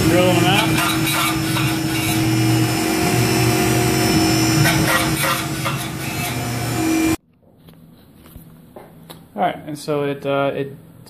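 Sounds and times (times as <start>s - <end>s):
drill cutting: 0.0s - 7.2s
mill spindle whine: 0.0s - 7.2s.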